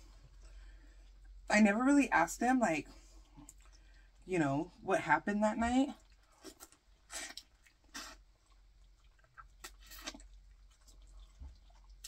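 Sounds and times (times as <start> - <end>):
person sucking and slurping food: 6.2 - 12.0.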